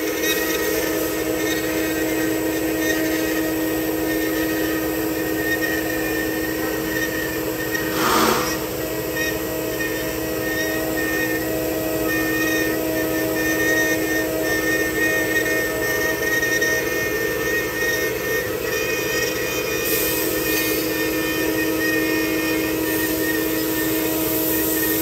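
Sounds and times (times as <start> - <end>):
router spindle whining: 0.1 - 19.8
bit cutting wood: 6.5 - 8.9.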